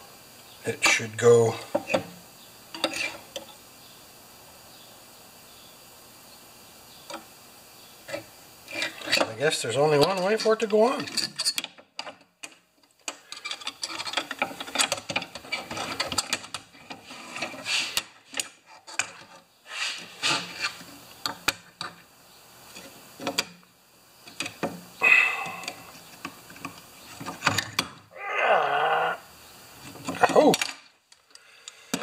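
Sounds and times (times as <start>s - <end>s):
metal scraping and clicking: 8.1s - 19.4s.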